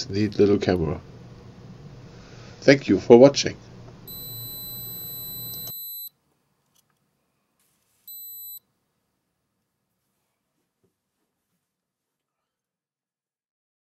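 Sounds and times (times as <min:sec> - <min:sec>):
camera beeping: 0:04.1 - 0:06.1, 0:08.1 - 0:08.6.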